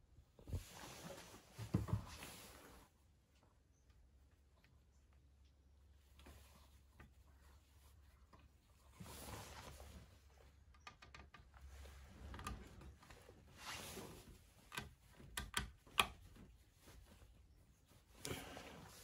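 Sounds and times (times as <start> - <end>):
small clicks and taps: 10.5 - 12.7, 14.6 - 16.5
soft rubbing: 11.7 - 14.7, 16.2 - 19.0.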